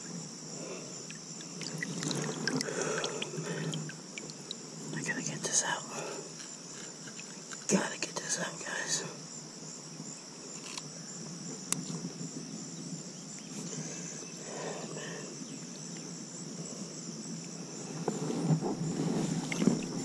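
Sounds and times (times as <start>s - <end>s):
shallow river water: 0.0s - 7.7s, 9.4s - 20.0s
insects chirping: 0.0s - 20.0s
water sloshing and splashing: 1.1s - 5.0s, 19.2s - 20.0s.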